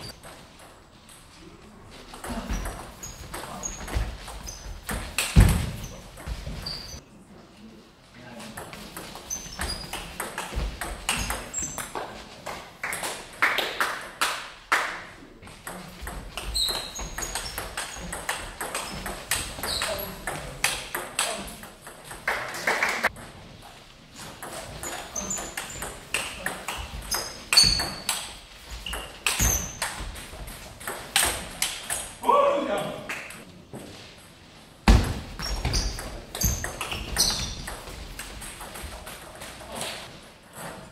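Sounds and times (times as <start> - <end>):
ball bouncing on table: 34.9 - 39.2.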